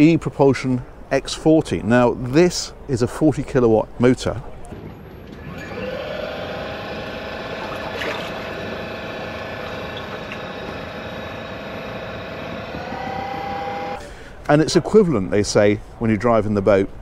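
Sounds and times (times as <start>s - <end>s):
electric outboard motor whine: 5.3s - 14.0s
water rushing: 7.2s - 10.6s.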